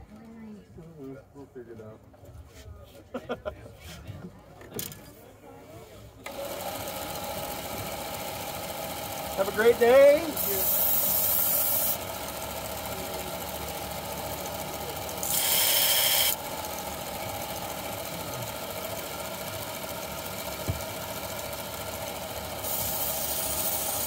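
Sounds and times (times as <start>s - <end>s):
belt sharpener motor running: 6.2s - 24.0s
knife ground on abrasive belt: 10.3s - 12.0s, 15.2s - 16.4s, 22.6s - 24.0s.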